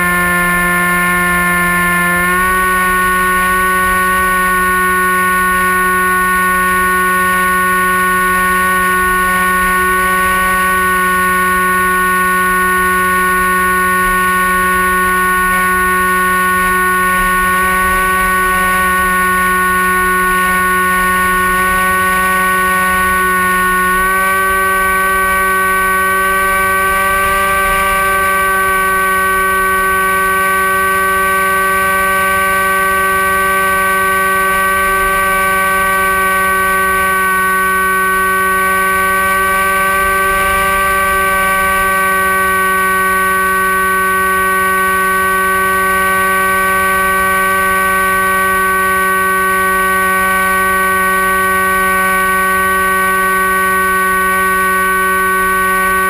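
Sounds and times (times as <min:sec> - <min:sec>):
electric motor and propeller whining: 0:00.0 - 0:56.0.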